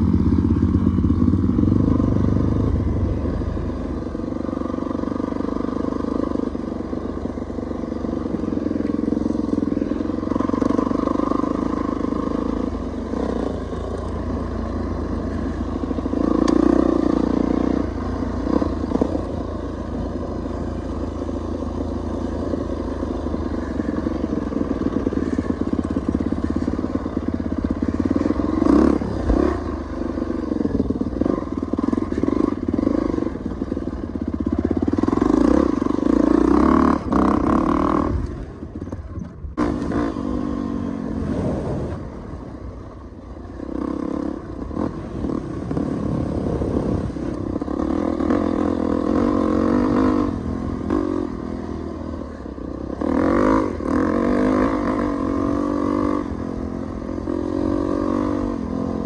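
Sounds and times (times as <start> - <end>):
dirt bike engine revving: 0.0 - 38.9, 39.5 - 59.0.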